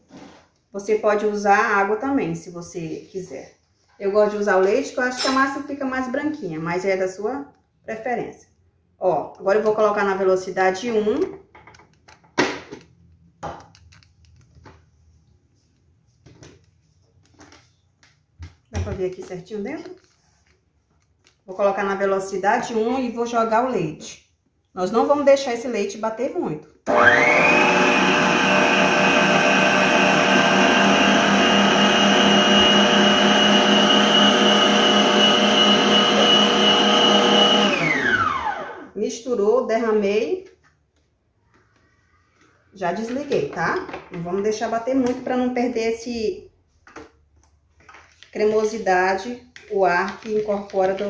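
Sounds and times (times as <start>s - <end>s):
stand mixer motor whine: 26.9s - 38.9s.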